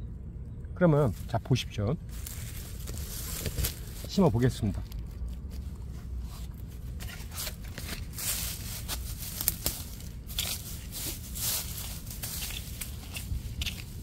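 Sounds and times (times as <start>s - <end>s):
dry leaf litter crackling: 1.0s - 14.0s
hand hoe digging into soil: 6.9s - 14.0s.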